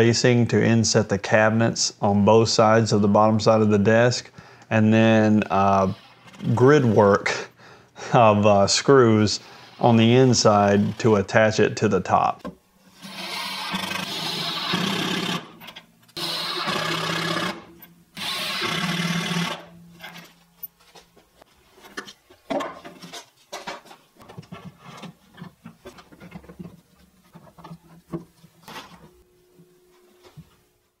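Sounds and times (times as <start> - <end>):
cordless driver driving screws: 13.0 - 15.5, 18.2 - 19.6.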